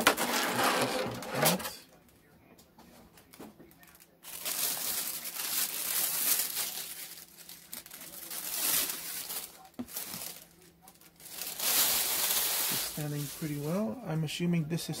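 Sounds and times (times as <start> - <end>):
plastic bag crinkling: 3.7 - 14.0.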